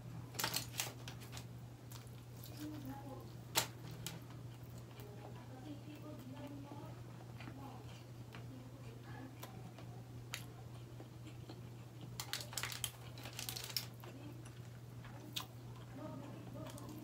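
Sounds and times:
steady low hum: 0.0 - 17.0
aluminium foil crinkling: 0.3 - 5.1, 12.1 - 14.7.

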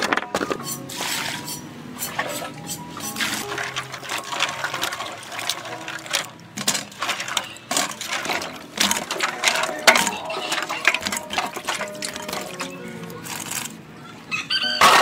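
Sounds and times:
fruit pieces hitting metal bowl: 3.0 - 13.8.

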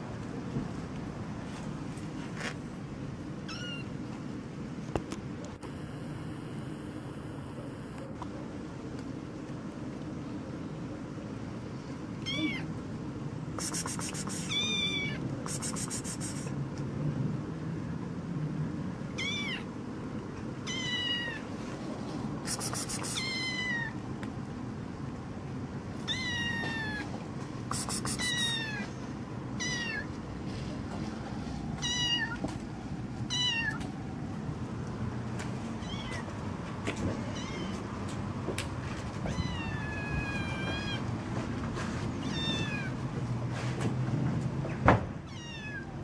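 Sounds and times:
kitten meowing: 3.5 - 3.9, 12.2 - 12.7, 13.7 - 16.5, 19.2 - 19.7, 20.6 - 21.4, 22.5 - 24.0, 26.1 - 27.1, 27.7 - 28.8, 29.6 - 30.1, 35.8 - 36.2, 39.3 - 41.0, 42.2 - 42.9, 45.3 - 46.0.

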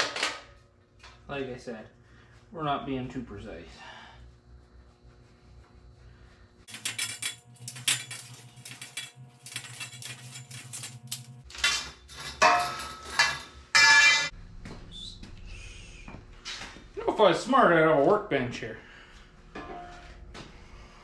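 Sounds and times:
metal pipe clicking and scraping: 6.7 - 14.3
metal clanks ringing: 11.6 - 14.3, 19.6 - 20.1.

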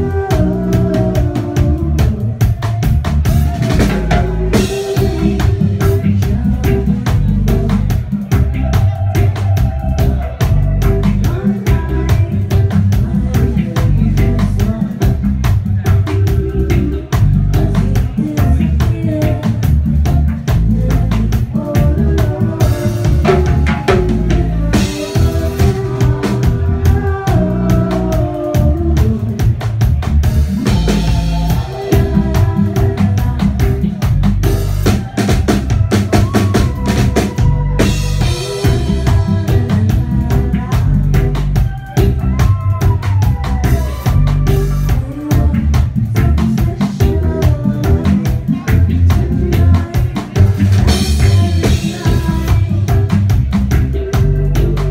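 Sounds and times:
drum kit with rimshots: 0.0 - 54.9
electric bass guitar line: 0.0 - 54.9.

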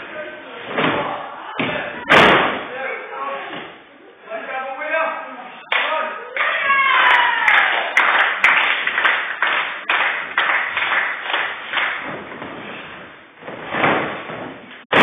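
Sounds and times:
echoing hand claps: 5.7 - 12.2.

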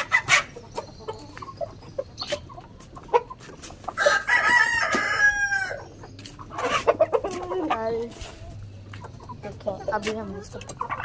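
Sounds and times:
long steady chicken call: 0.0 - 7.3
chickens clucking: 0.0 - 11.0.

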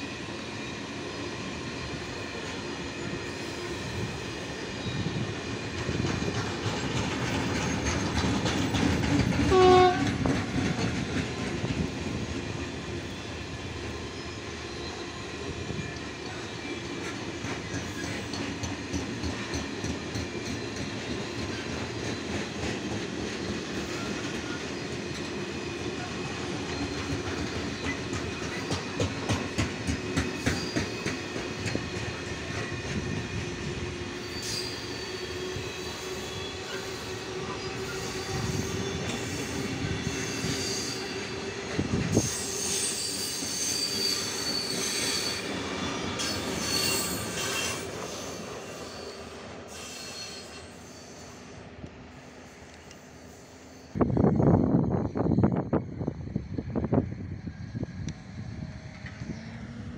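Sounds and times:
train wheels clattering over rail joints: 4.8 - 12.4, 16.2 - 33.6
high-pitched wheel squeal: 34.2 - 41.3, 42.1 - 51.4.

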